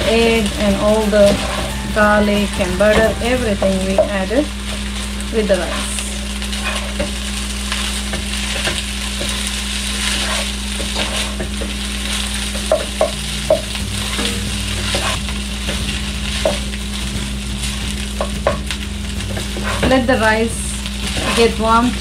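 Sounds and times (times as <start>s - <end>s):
rice sizzling in a pan: 0.0s - 22.0s
plastic spatula scraping a pan: 10.0s - 11.5s.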